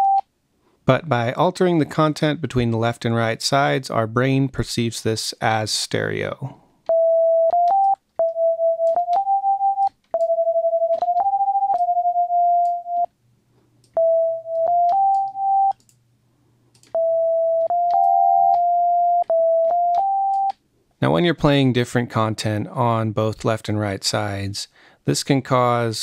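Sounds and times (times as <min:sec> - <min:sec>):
note clicks: 0:13.9 - 0:16.0, 0:17.6 - 0:20.6.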